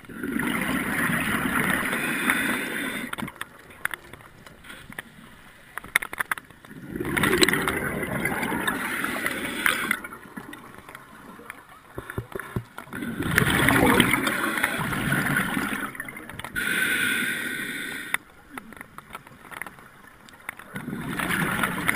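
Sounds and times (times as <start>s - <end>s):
gurgling exhaled bubbles underwater: 0.0s - 3.5s, 6.7s - 16.6s, 20.6s - 21.9s
faint clicking: 1.6s - 21.9s.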